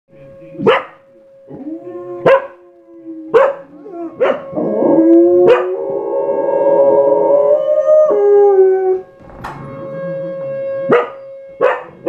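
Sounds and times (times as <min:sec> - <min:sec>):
dogs barking: 0:00.6 - 0:01.0, 0:02.2 - 0:02.6, 0:03.3 - 0:04.6, 0:05.4 - 0:05.8, 0:10.9 - 0:12.0
dogs howling: 0:01.5 - 0:09.1.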